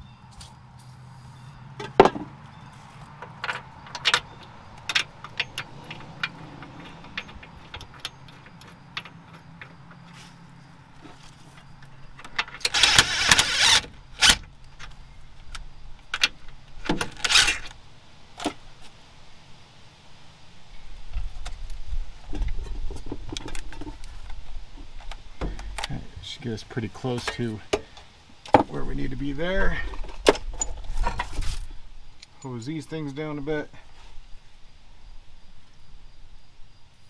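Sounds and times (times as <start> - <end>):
metal clicks of hand tools and bolts: 3.2 - 10.2, 25.0 - 26.0
metal rattling: 3.3 - 10.5.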